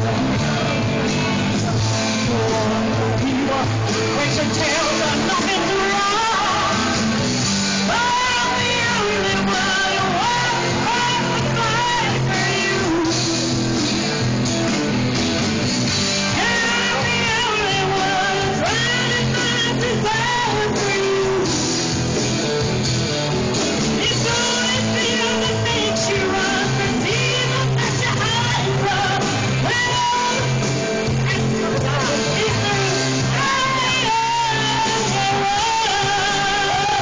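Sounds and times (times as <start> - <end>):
backing track with guitar: 0.0 - 37.0
woman singing into microphone: 2.2 - 7.2, 7.8 - 13.6, 16.3 - 21.6, 24.0 - 37.0.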